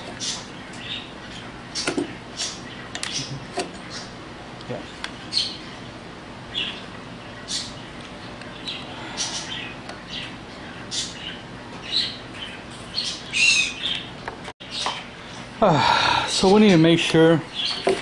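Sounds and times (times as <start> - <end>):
small bird chirping: 5.3 - 5.7, 6.5 - 14.1.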